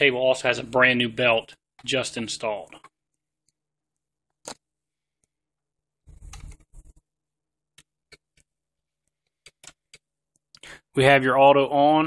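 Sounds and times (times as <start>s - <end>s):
sharp clicks: 9.4s - 10.7s.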